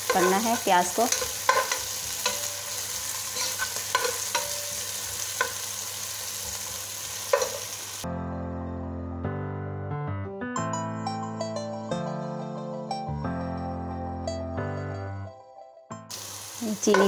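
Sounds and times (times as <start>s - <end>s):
spatula scraping steel pot: 0.0s - 2.7s, 3.3s - 4.6s
onion sizzling in hot oil: 0.0s - 8.0s, 16.1s - 17.0s
background music: 8.0s - 17.0s.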